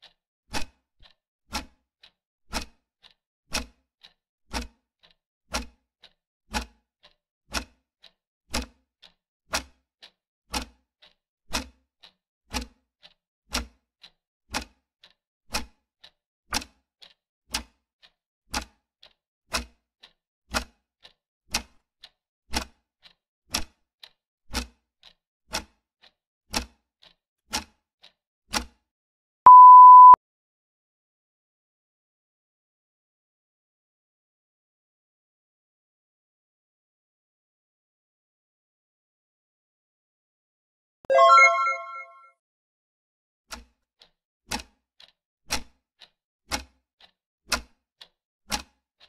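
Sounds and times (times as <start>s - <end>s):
electronic beep: 29.5s - 30.2s, 41.1s - 42.2s.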